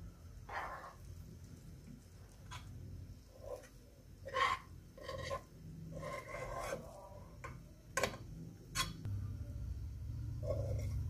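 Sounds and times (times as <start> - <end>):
rice scraped from a bowl: 3.3 - 7.4.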